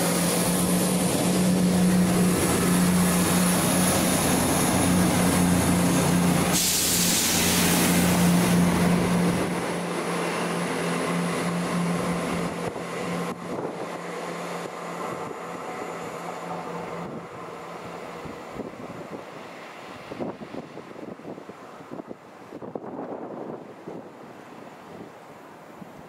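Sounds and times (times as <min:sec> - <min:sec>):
train passing by: 0:00.0 - 0:25.8.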